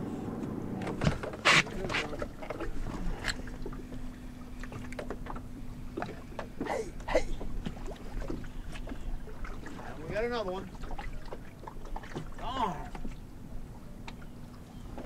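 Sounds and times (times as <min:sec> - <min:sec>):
clicks of rod and reel handling: 0:00.4 - 0:03.8.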